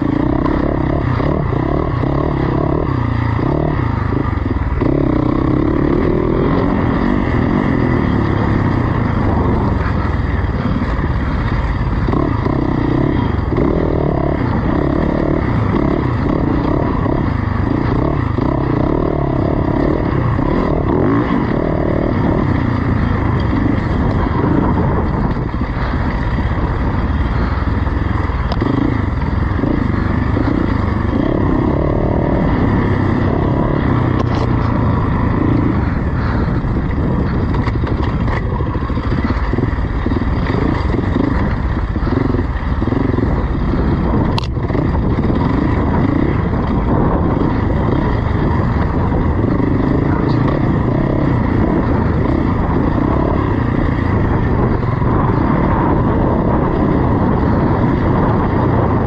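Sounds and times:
motorcycle engine revving: 0.0s - 59.0s
sharp ticks or knocks: 44.3s - 44.6s.

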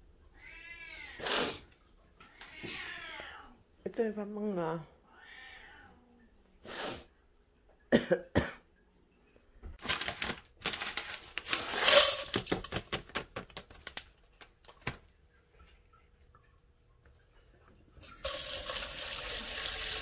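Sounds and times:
packet crinkling: 9.8s - 15.0s
dry flakes tipped into plastic bowl: 10.0s - 12.8s.

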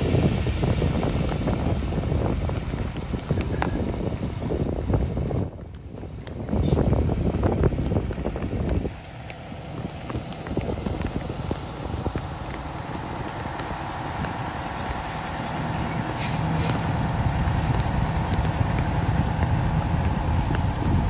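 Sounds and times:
vehicle engine rumbling: 0.0s - 21.0s
short hisses: 16.2s - 16.8s.

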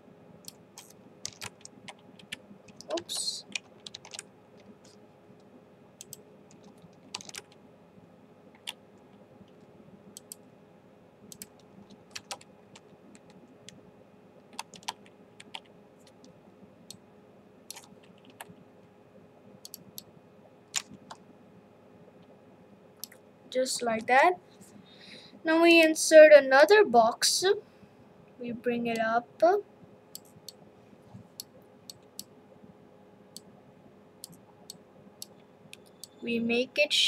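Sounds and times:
faint steady hum: 0.0s - 37.0s
computer mouse clicks: 0.4s - 5.0s, 6.0s - 7.6s, 10.1s - 10.4s, 11.3s - 13.4s, 17.7s - 18.6s, 19.6s - 20.1s, 23.0s - 23.2s, 30.1s - 30.6s, 34.2s - 36.2s.

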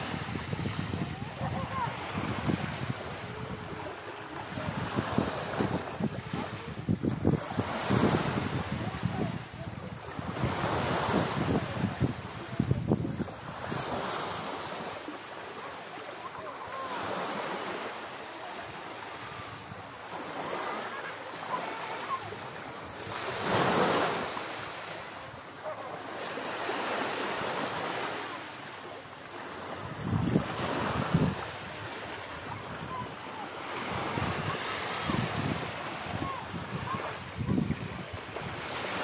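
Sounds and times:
waves breaking on sandy beach: 0.0s - 39.0s.

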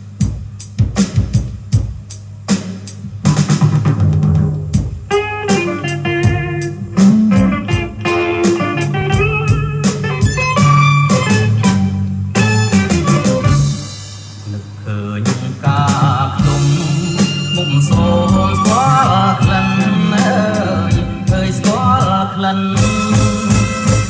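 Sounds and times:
drum beat: 0.0s - 14.5s, 15.3s - 24.0s
bass line: 3.1s - 24.0s
guitar melody: 5.1s - 14.0s, 16.4s - 24.0s.

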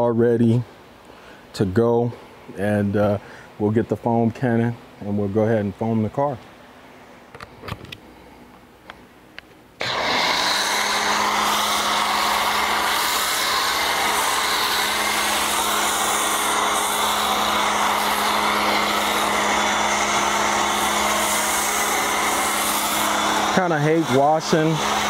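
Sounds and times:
pressure washer motor hum: 9.8s - 25.0s
spray hissing: 9.8s - 25.0s.

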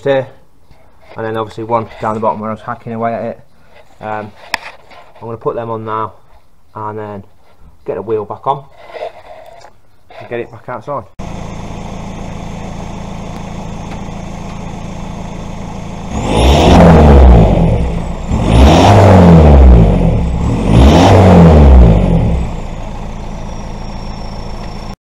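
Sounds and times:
van engine idling and revving: 11.2s - 25.0s.

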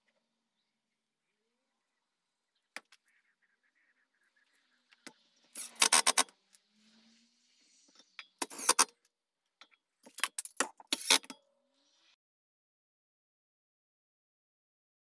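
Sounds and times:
impact driver driving screws: 5.6s - 6.3s.

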